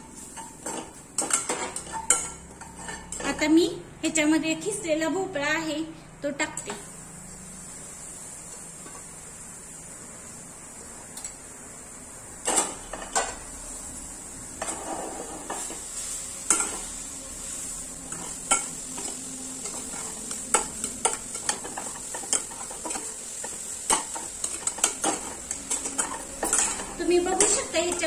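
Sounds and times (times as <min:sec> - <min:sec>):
food sizzling in oil: 0:00.0 - 0:03.6, 0:06.4 - 0:28.0
metal spatula scraping a pot: 0:00.3 - 0:03.4, 0:14.6 - 0:15.8, 0:18.0 - 0:28.0.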